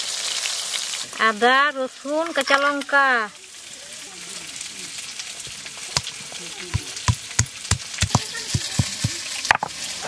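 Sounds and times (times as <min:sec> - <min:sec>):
fish sizzling in oil: 0:00.0 - 0:10.0
stone roller knocking on grinding stone: 0:06.8 - 0:09.7.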